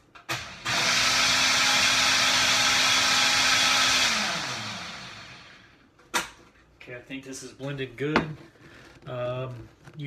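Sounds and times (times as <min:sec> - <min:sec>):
blender motor running: 0:00.3 - 0:05.8.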